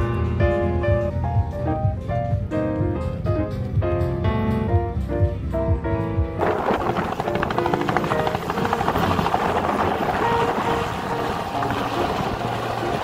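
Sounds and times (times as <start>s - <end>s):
faint music: 0.0s - 13.0s
helicopter rotor and engine: 6.4s - 13.0s.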